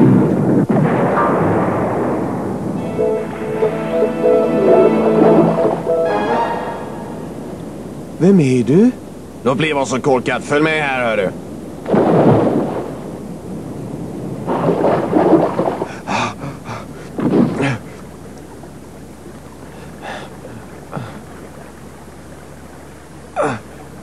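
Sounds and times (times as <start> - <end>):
loud crash of water: 0.0 - 3.0, 11.7 - 24.0
low background hum: 0.0 - 24.0
cartoon blows: 2.8 - 7.6
grunts: 15.9 - 18.0, 19.8 - 21.4, 23.4 - 23.8.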